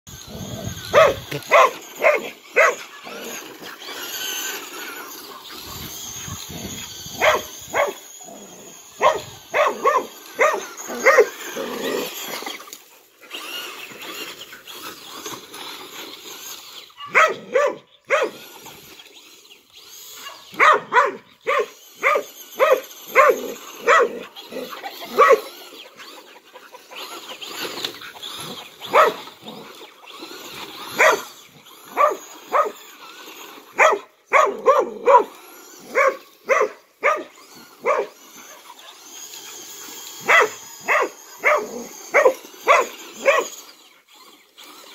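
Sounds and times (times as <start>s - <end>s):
faint electric motor whir: 0.1s - 44.9s
dog barking excitedly: 0.7s - 4.4s, 7.2s - 8.0s, 9.0s - 12.0s, 17.0s - 18.5s, 20.2s - 25.7s, 28.6s - 29.3s, 30.8s - 39.0s, 40.2s - 43.7s.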